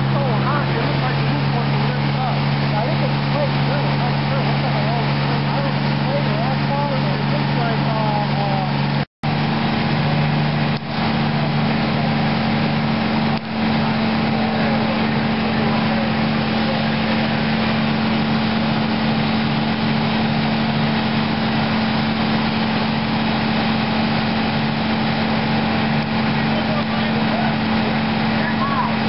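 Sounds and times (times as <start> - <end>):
diesel engine droning: 0.0 - 29.0.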